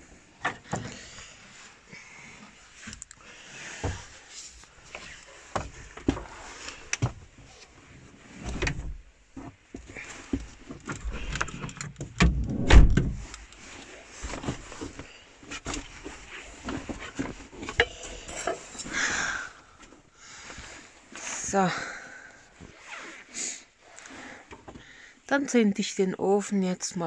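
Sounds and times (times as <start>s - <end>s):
knocks and clatter of handling things: 0.4s - 1.0s, 4.9s - 7.4s, 8.4s - 19.1s
heavy thud: 12.2s - 13.3s.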